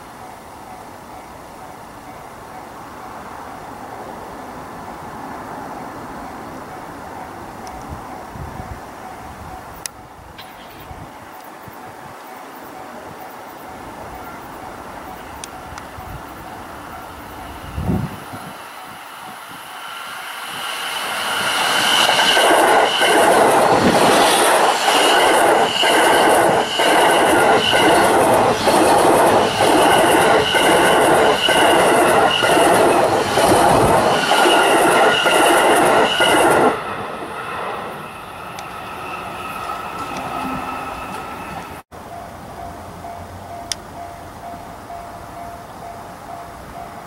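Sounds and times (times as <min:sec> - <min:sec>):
electric train passing: 0:00.0 - 0:47.0
high whine: 0:17.2 - 0:41.8.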